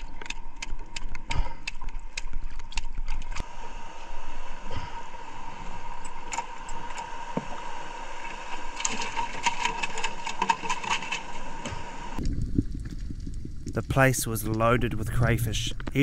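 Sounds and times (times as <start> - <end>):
underwater mechanical whine: 2.0 - 12.7.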